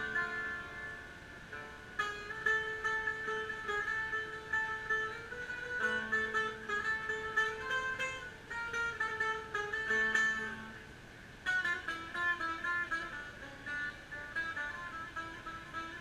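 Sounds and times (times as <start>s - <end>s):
plucked string instrument melody: 0.0s - 16.0s.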